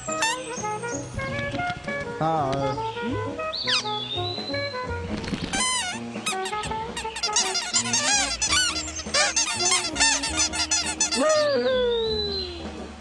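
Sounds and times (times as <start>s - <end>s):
cartoon birds squawking: 0.0s - 0.6s, 3.1s - 4.0s, 5.4s - 12.6s
light music with bass line: 0.0s - 13.0s
long descending squawk: 7.3s - 12.4s.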